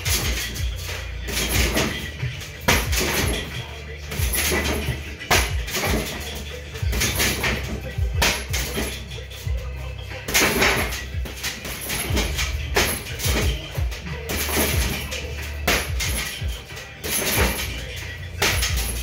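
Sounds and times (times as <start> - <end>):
kicks striking punching bag: 0.0 - 9.6, 10.3 - 17.8, 18.4 - 19.0
background music: 0.0 - 19.0.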